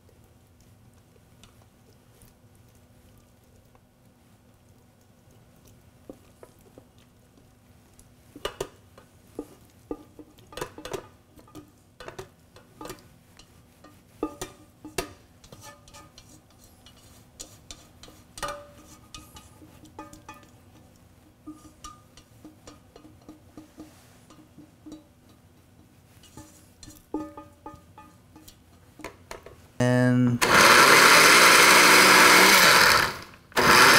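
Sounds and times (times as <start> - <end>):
pot clinking against glass jar: 18.4 - 29.0.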